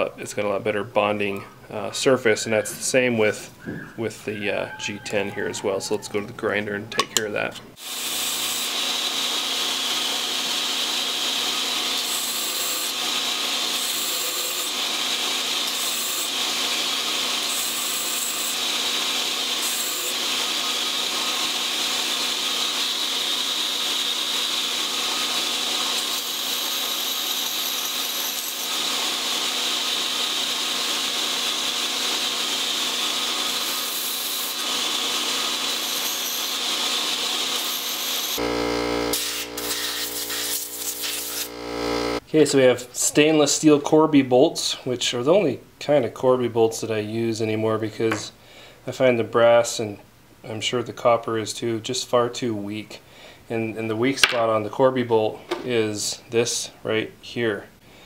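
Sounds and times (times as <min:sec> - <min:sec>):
belt grinder running: 0:07.8 - 0:42.2
scratchy grinding hiss: 0:38.4 - 0:42.2.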